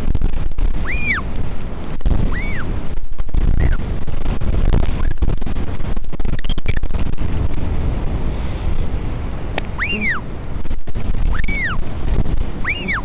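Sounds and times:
wind rumble on microphone: 0:00.0 - 0:13.0
albatross whistling call: 0:00.8 - 0:01.3, 0:02.2 - 0:02.7, 0:09.7 - 0:10.3, 0:11.3 - 0:11.8, 0:12.6 - 0:13.0.

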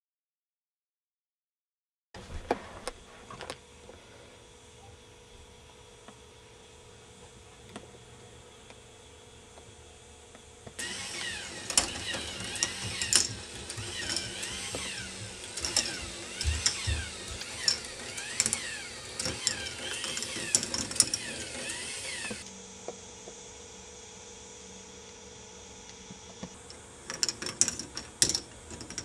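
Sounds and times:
balls clicking and clattering: 0:10.8 - 0:22.4, 0:26.7 - 0:29.0
plastic parts whirring: 0:10.8 - 0:22.5, 0:26.4 - 0:29.0.

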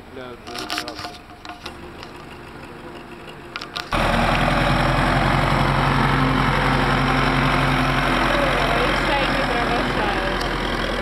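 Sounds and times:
tractor diesel engine running: 0:01.2 - 0:11.0.

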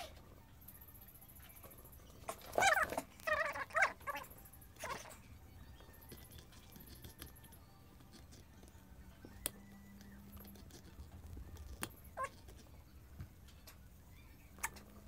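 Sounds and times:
room hum: 0:00.0 - 0:15.0.

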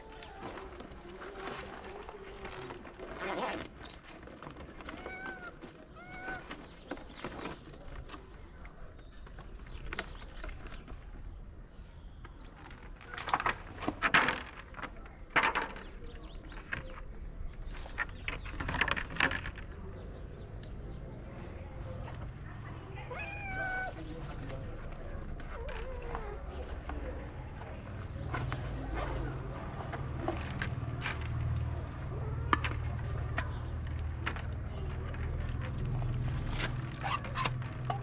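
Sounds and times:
plastic tray crinkling and clattering: 0:12.4 - 0:19.7
cat mewing: 0:23.0 - 0:24.0.

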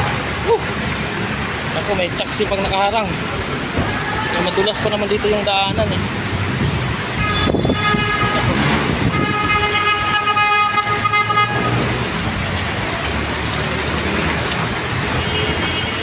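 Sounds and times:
heavy rain: 0:00.0 - 0:16.0
street traffic: 0:00.0 - 0:16.0
vehicle horn honking: 0:07.2 - 0:11.9.

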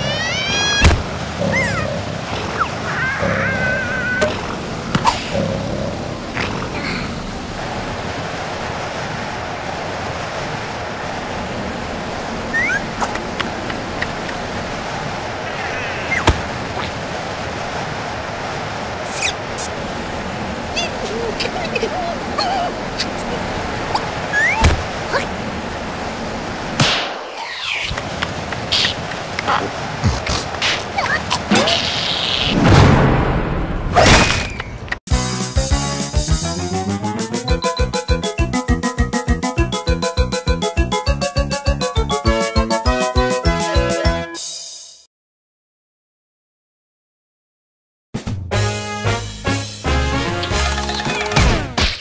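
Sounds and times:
cold wind rushing: 0:00.0 - 0:34.0.

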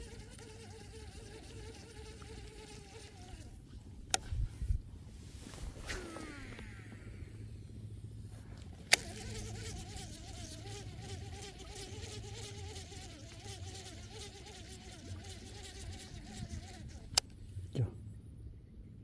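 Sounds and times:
fishing reel whirring: 0:05.8 - 0:07.5, 0:08.7 - 0:17.2.

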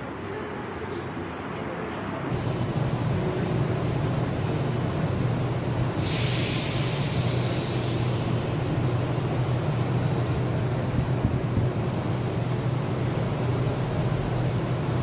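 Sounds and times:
metro train low rumble: 0:00.0 - 0:15.0
hiss of released air: 0:05.9 - 0:09.0.

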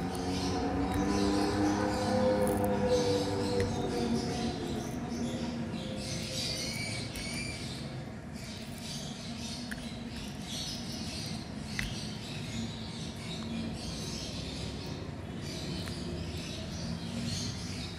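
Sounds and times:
sticky candy tearing: 0:02.3 - 0:03.8.

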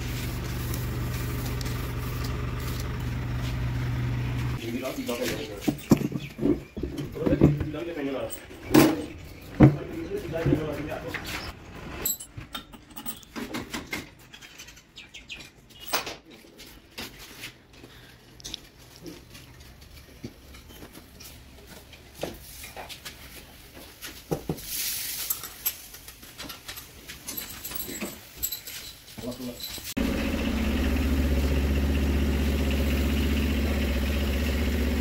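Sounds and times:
engine parts and tools clinking: 0:00.0 - 0:35.0.

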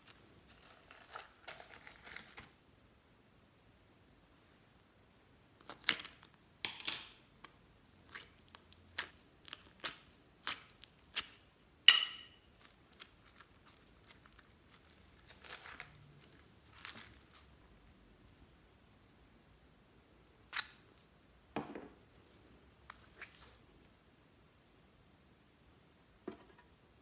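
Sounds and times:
sticky slime crackles and pops: 0:05.6 - 0:06.8, 0:07.4 - 0:11.4, 0:12.5 - 0:17.5.

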